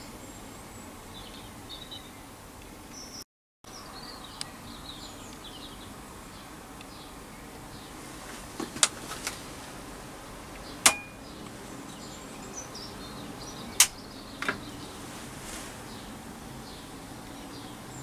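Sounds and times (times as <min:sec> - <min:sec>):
steady low hiss: 0:03.7 - 0:18.0
sharp clicks: 0:13.8 - 0:14.6.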